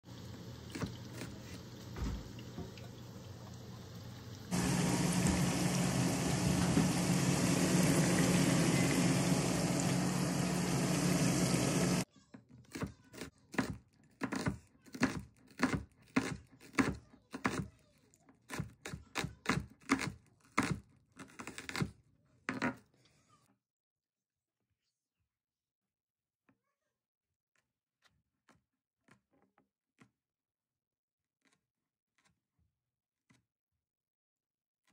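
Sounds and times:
knife chopping onion on board: 12.7s - 17.7s, 18.4s - 22.0s.

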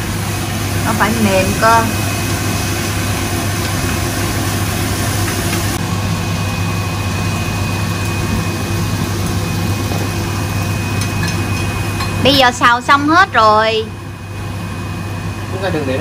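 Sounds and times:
extractor fan humming: 0.0s - 16.0s.

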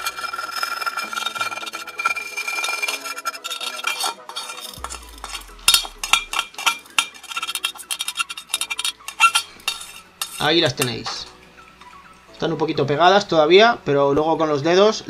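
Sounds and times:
knife scraping ceramic plate: 0.0s - 10.9s.

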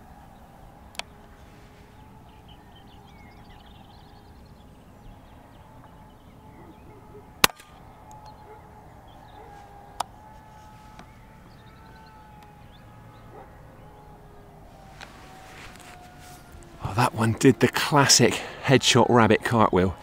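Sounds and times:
faint birdsong: 0.0s - 20.0s
air rifle shot crack: 7.4s - 7.8s.

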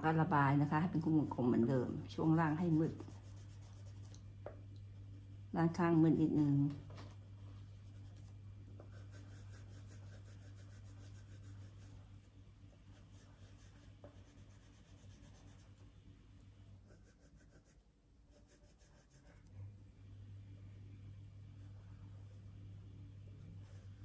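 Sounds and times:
low steady hum: 0.0s - 24.0s
pencil scratching on paper: 2.2s - 4.2s, 7.4s - 12.2s, 12.9s - 15.8s, 16.8s - 19.5s, 21.5s - 24.0s.

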